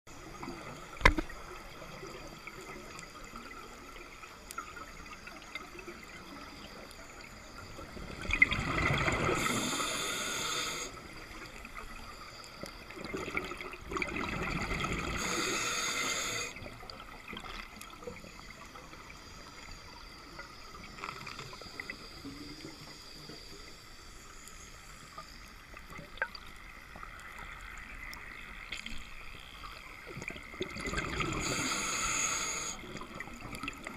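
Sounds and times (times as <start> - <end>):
scuba exhale bubbles rushing: 8.0 - 11.1, 12.9 - 16.6, 30.4 - 33.9.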